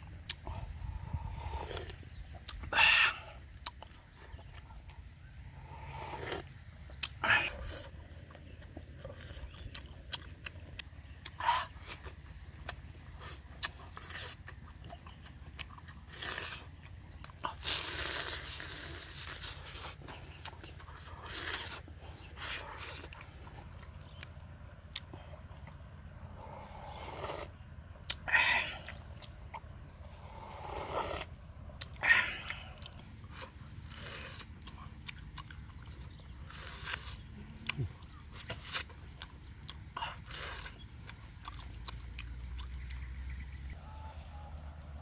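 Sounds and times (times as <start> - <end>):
person chewing and lip smacking: 0.0 - 43.8
slurping broth: 17.6 - 20.0, 26.5 - 27.6, 30.0 - 31.3.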